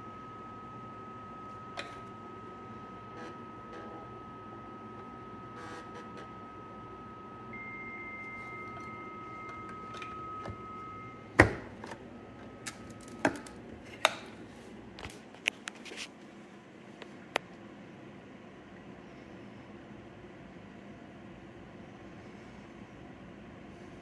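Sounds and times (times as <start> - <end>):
modem carrier tones: 0.0 - 13.7.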